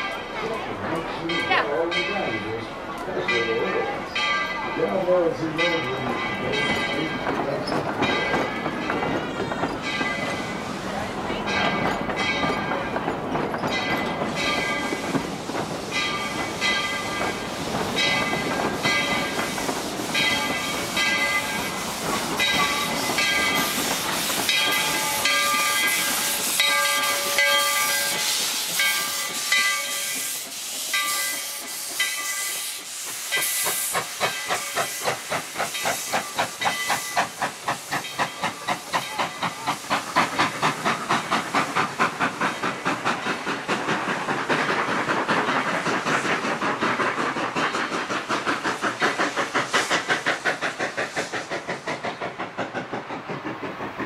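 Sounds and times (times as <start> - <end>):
steam locomotive hissing: 0.0 - 54.0.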